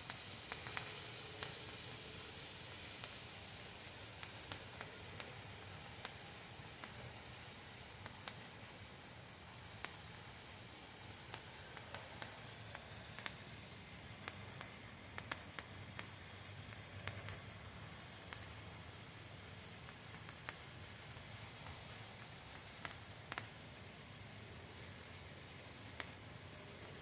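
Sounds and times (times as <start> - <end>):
firework hissing: 0.0 - 27.0
sharp crackles of sparks: 0.0 - 27.0.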